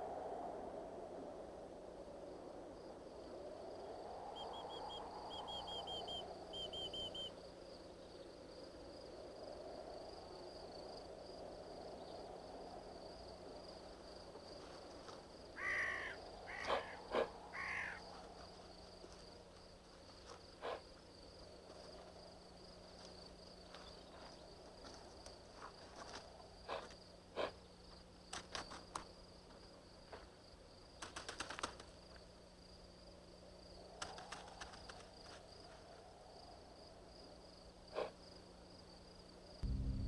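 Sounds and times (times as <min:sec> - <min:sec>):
small high chirps: 0:04.3 - 0:07.4
animal calls: 0:15.6 - 0:18.0
steady high whine: 0:39.6 - 0:40.0.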